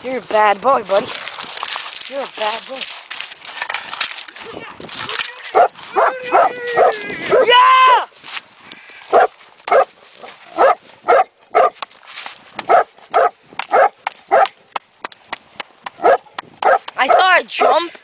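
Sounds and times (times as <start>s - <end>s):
dog barking: 5.5s - 7.5s, 9.1s - 9.9s, 10.5s - 11.8s, 12.7s - 14.5s, 16.0s - 17.8s.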